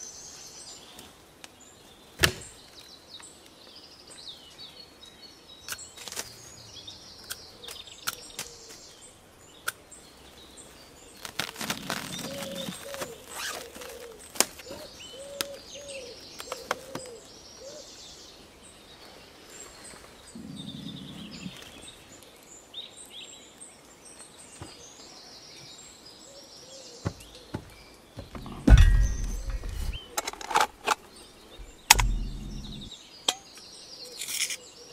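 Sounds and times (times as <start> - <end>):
birds singing: 0.0 - 34.9
plastic wrap rustling: 11.2 - 14.6.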